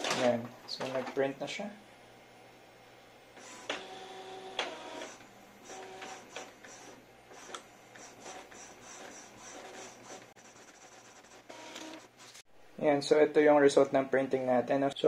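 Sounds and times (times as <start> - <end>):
printer motors whirring: 3.4 - 12.4.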